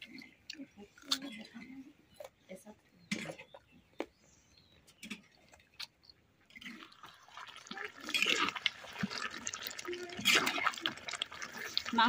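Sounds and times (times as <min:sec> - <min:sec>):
water sizzling in hot oil: 0:07.0 - 0:12.0.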